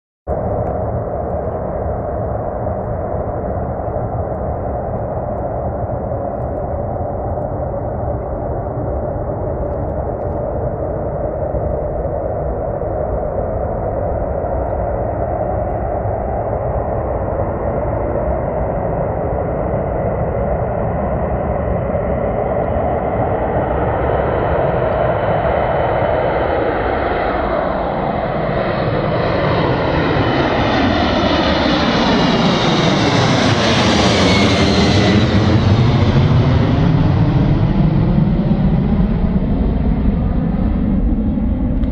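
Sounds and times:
high whine falling in pitch: 0.3s - 20.4s
jet engine roar: 0.3s - 41.9s.

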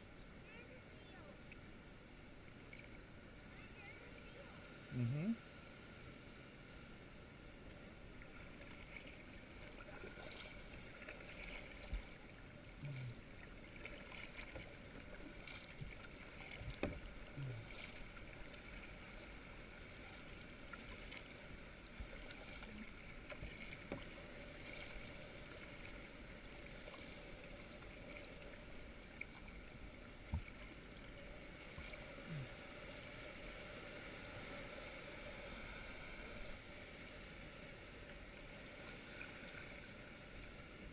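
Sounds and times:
water lapping at hull: 0.4s - 6.0s, 7.6s - 40.9s
paddle strokes in water: 8.1s - 33.6s.

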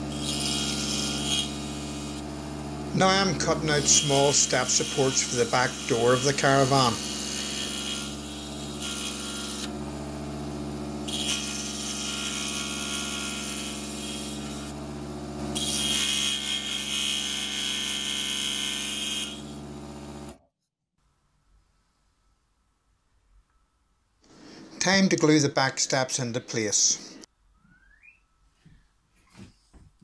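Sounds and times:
scroll saw cutting wood: 0.0s - 20.4s.

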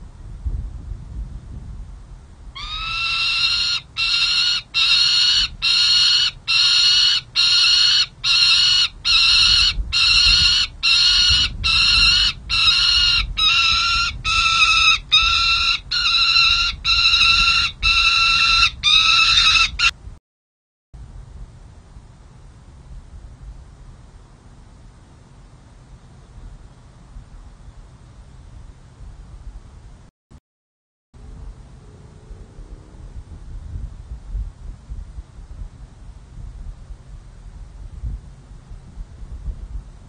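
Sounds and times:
falcon harsh calls: 2.6s - 19.9s.

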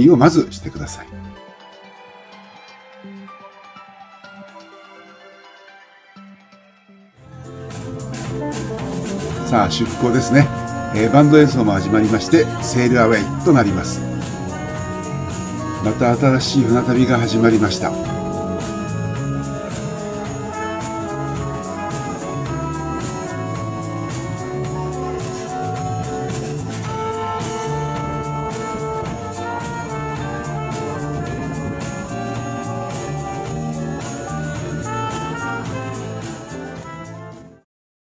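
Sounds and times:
upbeat brass jazz band music: 7.4s - 37.6s.

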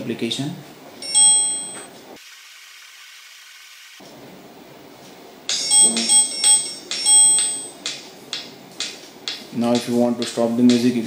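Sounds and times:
high notification chimes: 1.0s - 2.0s, 5.5s - 7.8s.

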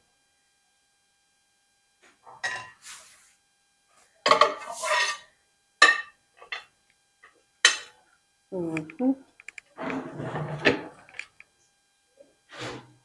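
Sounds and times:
plate clattering: 5.8s - 6.7s.

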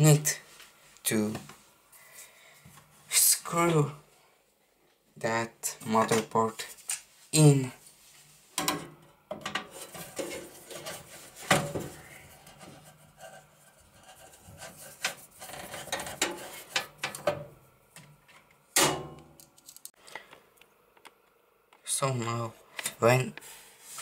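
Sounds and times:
screwdriver clicks and metal knocks: 8.6s - 9.7s
scraping and rubbing: 9.6s - 17.2s.

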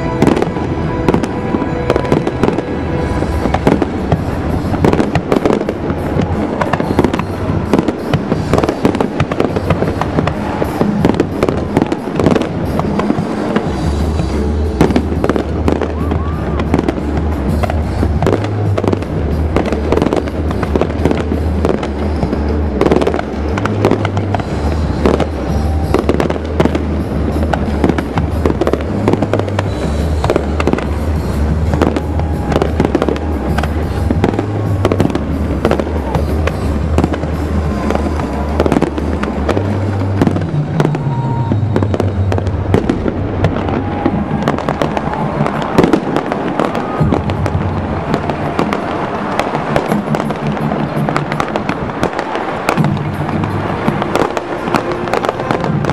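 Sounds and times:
fireworks bangs and crackling: 0.0s - 55.9s
loud music with low bass: 0.0s - 55.9s.

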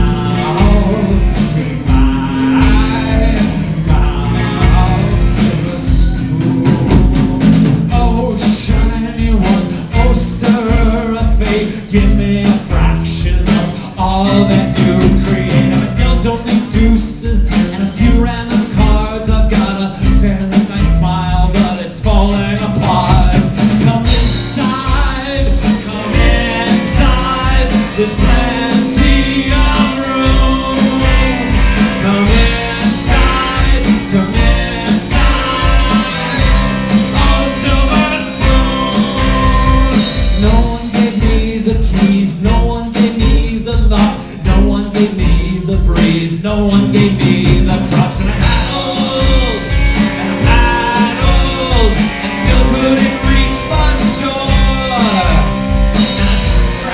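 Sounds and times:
live rock band playing: 0.0s - 56.9s
male lead vocal: 0.0s - 56.9s
steady drum beat: 0.0s - 56.9s
electric guitar: 19.6s - 41.8s, 46.8s - 56.9s.

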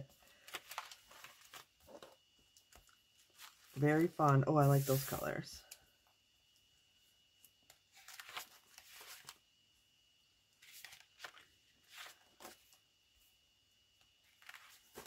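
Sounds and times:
paper sheets rustling: 0.3s - 2.2s, 3.2s - 5.4s, 7.9s - 9.4s, 10.6s - 12.8s, 14.3s - 15.0s.

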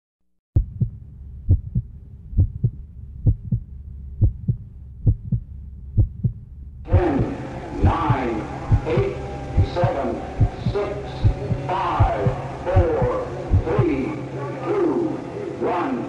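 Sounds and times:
heartbeat thumps: 0.6s - 14.1s
low hum: 0.6s - 16.0s
voices: 6.9s - 16.0s.

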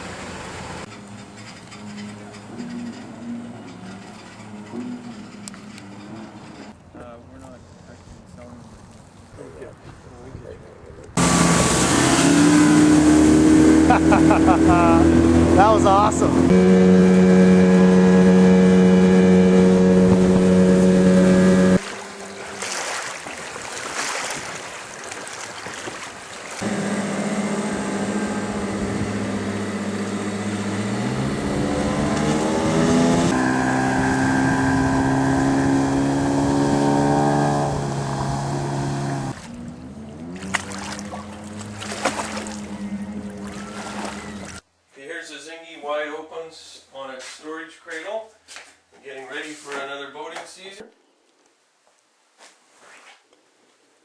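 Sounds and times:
wind: 0.0s - 54.0s
small boat motor running: 0.1s - 6.8s, 11.2s - 23.8s, 25.2s - 44.6s
water noise: 11.1s - 44.7s.

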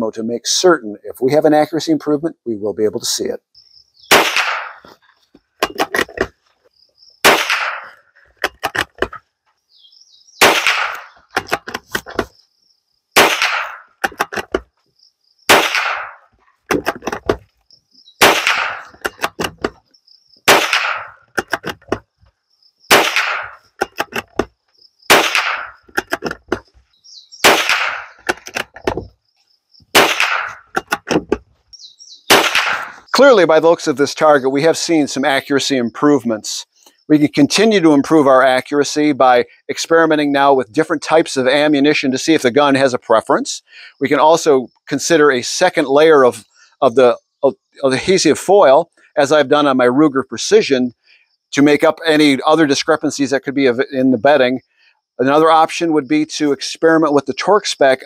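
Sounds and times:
rifle shots: 4.1s - 4.9s, 7.2s - 8.0s, 10.4s - 11.2s, 13.2s - 14.0s, 15.5s - 16.8s, 18.2s - 19.0s, 20.5s - 21.2s, 22.9s - 23.7s, 25.1s - 25.8s, 27.4s - 28.3s, 29.9s - 30.7s, 32.3s - 33.0s.

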